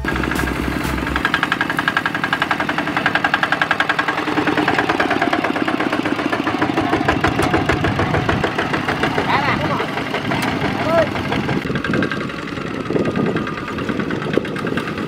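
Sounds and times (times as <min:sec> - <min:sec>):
music track: 0:00.0 - 0:03.5
walking tractor diesel engine knocking: 0:00.0 - 0:15.0.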